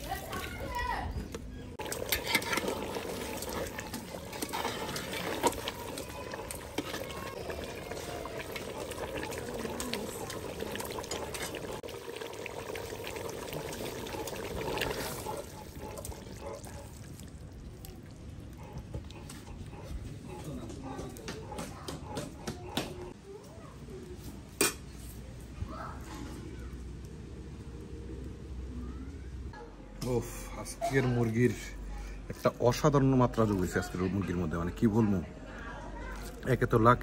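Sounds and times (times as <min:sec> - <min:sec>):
curry bubbling in a pot: 0:01.6 - 0:23.1
metal ladle stirring and clicking: 0:01.8 - 0:11.8.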